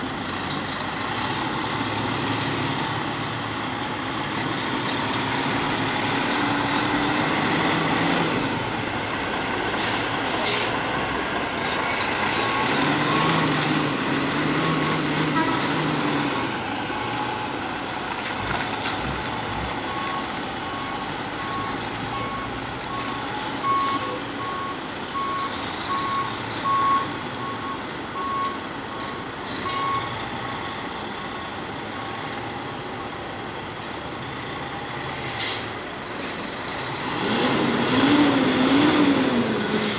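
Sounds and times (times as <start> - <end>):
short air hisses: 9.8 - 10.9, 35.1 - 36.5
reversing alarm beeping: 19.9 - 28.6.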